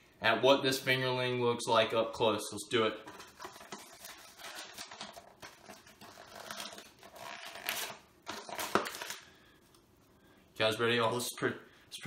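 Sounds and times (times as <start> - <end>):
packaging tearing and crinkling: 3.5 - 9.3.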